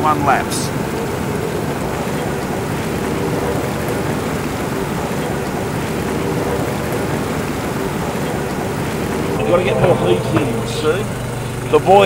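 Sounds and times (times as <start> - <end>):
faint hum: 9.3 - 12.0.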